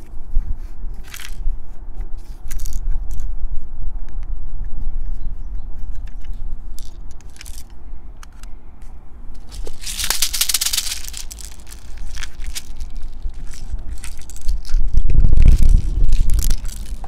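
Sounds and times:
plastic pellets rattling into toy gun: 0:06.8 - 0:07.7, 0:09.4 - 0:17.0.

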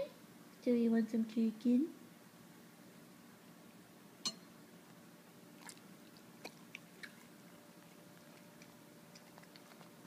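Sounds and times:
dog chewing: 0:05.4 - 0:10.0.

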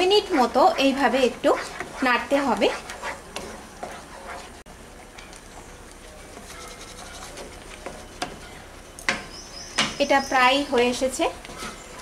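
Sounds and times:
wooden spatula scraping a pan: 0:00.0 - 0:04.6, 0:06.2 - 0:08.6, 0:11.5 - 0:12.0.

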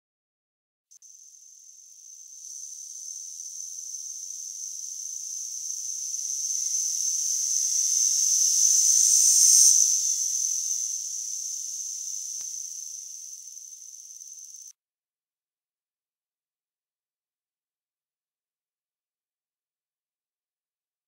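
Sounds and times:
high-pitched hiss: 0:01.0 - 0:14.7.

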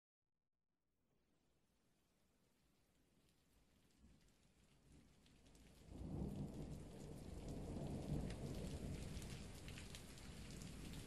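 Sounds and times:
rain falling: 0:02.5 - 0:11.0
raindrops ticking: 0:02.9 - 0:11.0
low roll of thunder: 0:05.8 - 0:11.0.

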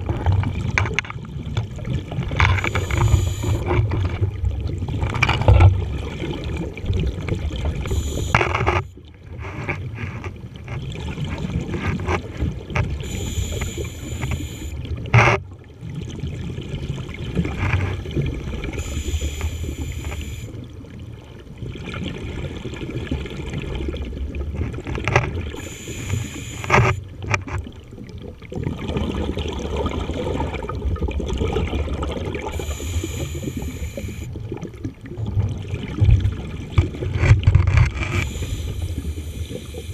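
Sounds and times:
scuba regulator breathing: 0:02.6 - 0:03.7, 0:07.9 - 0:08.9, 0:13.0 - 0:14.8, 0:18.8 - 0:20.5, 0:25.6 - 0:27.0, 0:32.5 - 0:34.3, 0:38.1 - 0:39.9.

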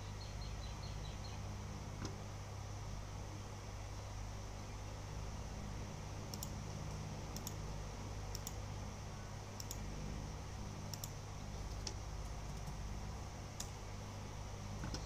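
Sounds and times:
steady low hum: 0:00.0 - 0:15.0
light sharp clicks: 0:06.3 - 0:07.6, 0:08.3 - 0:08.6, 0:09.6 - 0:09.9, 0:10.9 - 0:12.8, 0:13.6 - 0:13.8.

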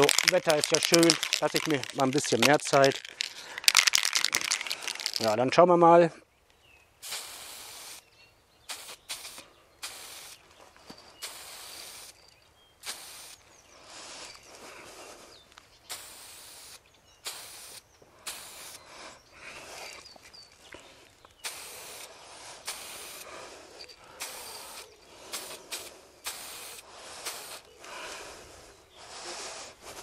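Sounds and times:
spray paint can hissing: 0:00.0 - 0:05.2, 0:07.0 - 0:08.0, 0:08.7 - 0:10.4, 0:11.2 - 0:12.2, 0:12.8 - 0:13.4, 0:15.9 - 0:18.8, 0:21.4 - 0:23.4, 0:24.2 - 0:27.7.

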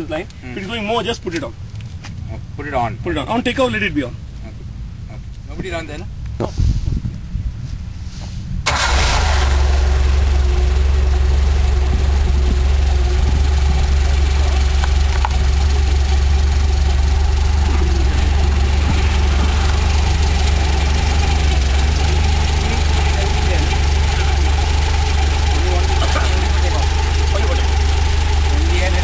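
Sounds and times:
aircraft engine running steadily: 0:08.7 - 0:29.0.

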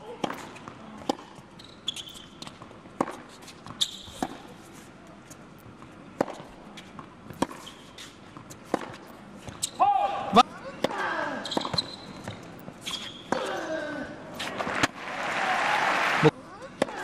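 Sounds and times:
tennis ball bouncing: 0:00.2 - 0:04.5, 0:05.7 - 0:09.7, 0:10.8 - 0:13.6
tennis ball off racket: 0:00.2 - 0:09.8, 0:10.8 - 0:13.6.

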